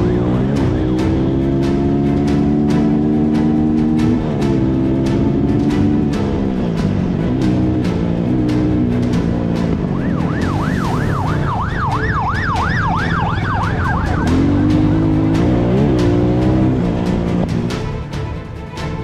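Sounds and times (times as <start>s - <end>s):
background music: 0.0s - 19.0s
police siren wailing and yelping: 9.8s - 15.0s.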